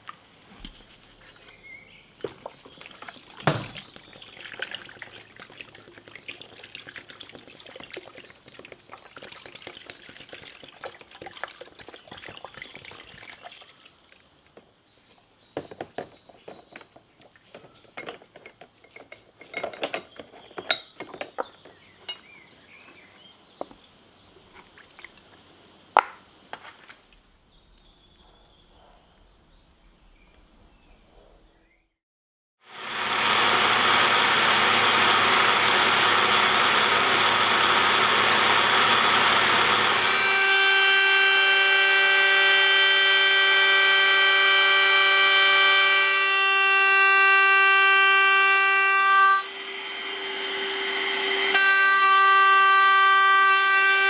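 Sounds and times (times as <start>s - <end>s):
liquid pouring and splashing: 2.2s - 14.3s.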